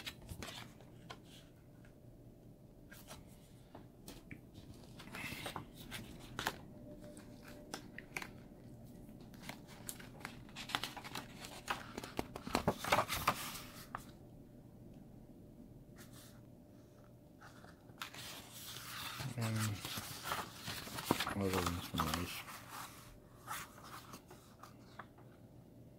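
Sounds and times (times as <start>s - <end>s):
pages being turned: 0.0s - 1.5s, 2.9s - 8.6s, 9.2s - 14.2s, 17.4s - 25.1s
paper rustling: 0.0s - 1.5s, 2.9s - 8.5s, 9.2s - 14.2s, 17.4s - 25.2s.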